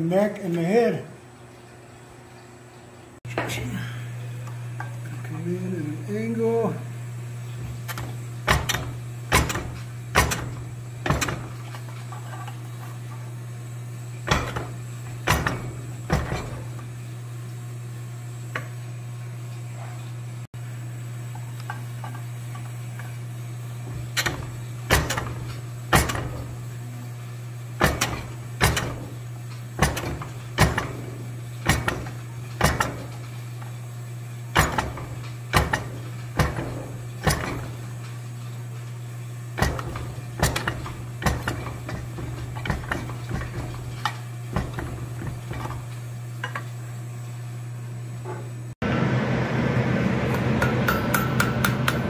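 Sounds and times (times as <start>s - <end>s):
steady low hum: 0.0s - 52.0s
forging hammer striking hot steel: 7.6s - 13.4s, 14.2s - 17.0s, 22.8s - 26.8s, 27.6s - 38.8s, 39.4s - 46.8s, 50.2s - 52.0s.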